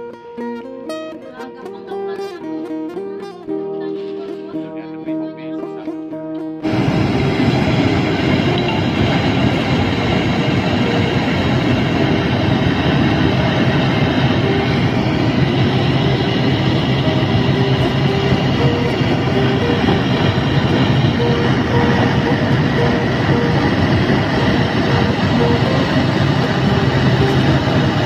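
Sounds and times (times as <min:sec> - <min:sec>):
propeller plane droning in cabin: 0:06.6 - 0:28.0.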